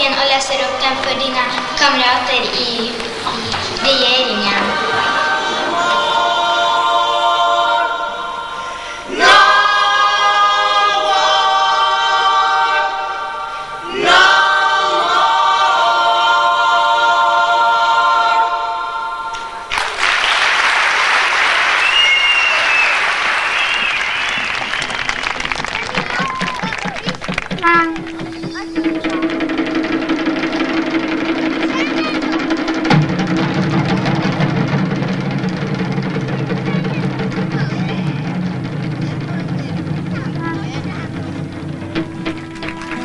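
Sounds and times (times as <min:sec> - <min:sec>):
choir singing held chords: 0:02.8 - 0:19.8.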